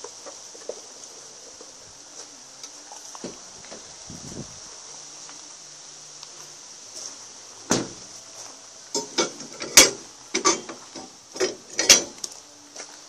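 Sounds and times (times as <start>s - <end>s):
metal clanks and knocks: 9.0s - 12.2s.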